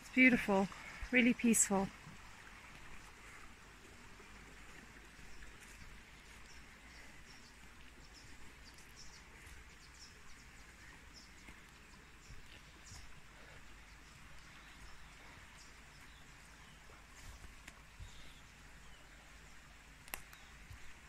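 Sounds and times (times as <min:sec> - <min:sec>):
stream running over rocks: 0:00.0 - 0:21.0.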